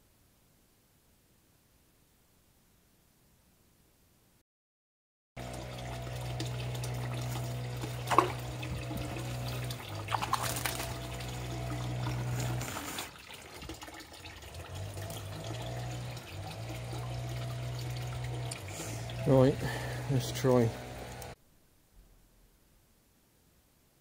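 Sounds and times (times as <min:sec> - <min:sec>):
steady low hum: 0:05.4 - 0:12.9, 0:14.8 - 0:23.0
water splashing and trickling: 0:05.4 - 0:21.4
sharp splashes: 0:06.0 - 0:14.0.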